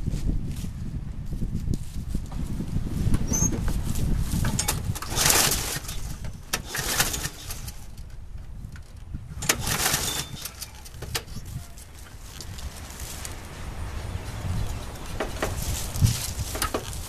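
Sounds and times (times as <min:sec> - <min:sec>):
footsteps crunching through dry leaves: 0:11.5 - 0:17.0.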